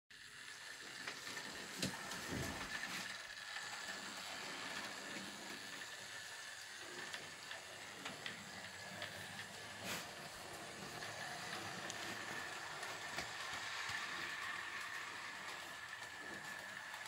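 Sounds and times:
model train motor whirring: 0.2 - 17.0
clicks from model train: 10.6 - 17.0.

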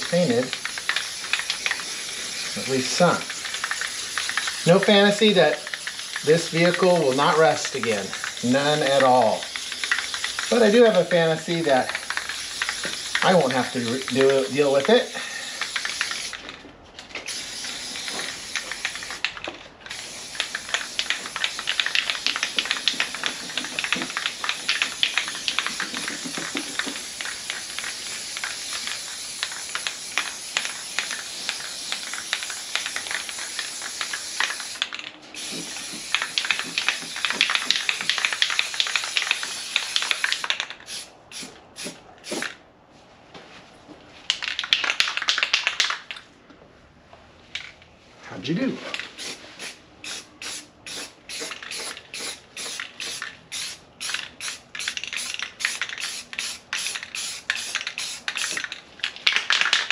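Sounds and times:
spray paint hissing: 0.0 - 16.5, 17.3 - 42.6, 48.9 - 59.9.

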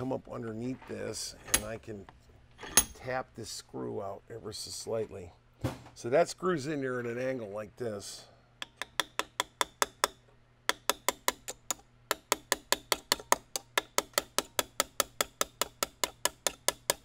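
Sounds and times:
hammer tapping on steel punch: 8.6 - 17.0.

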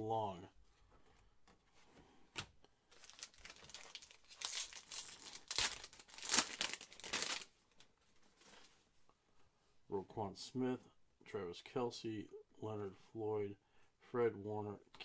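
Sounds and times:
foil wrapper crinkling and tearing: 2.9 - 7.5.

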